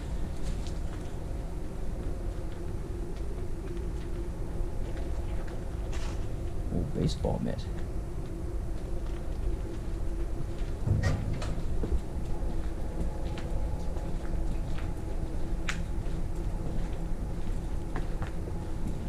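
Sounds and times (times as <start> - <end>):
footsteps crunching on debris: 0.0 - 1.2
low rumble: 0.0 - 19.0.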